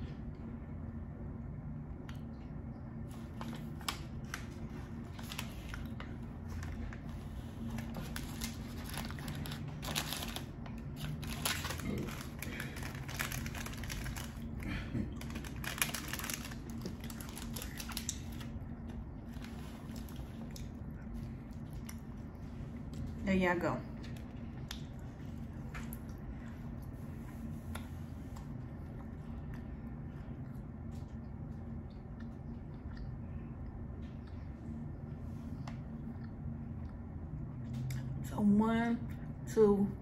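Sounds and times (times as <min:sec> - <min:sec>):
low steady hum: 0:00.0 - 0:40.0
snack packet crackling: 0:03.1 - 0:20.8.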